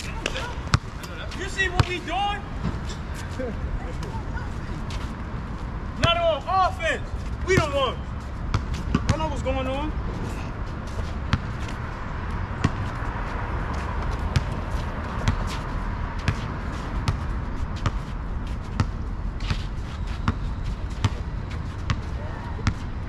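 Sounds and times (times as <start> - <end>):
steady background noise: 0.0 - 23.0
basketball bouncing on asphalt: 0.2 - 1.0, 8.5 - 9.4, 10.9 - 11.9, 12.5 - 22.9.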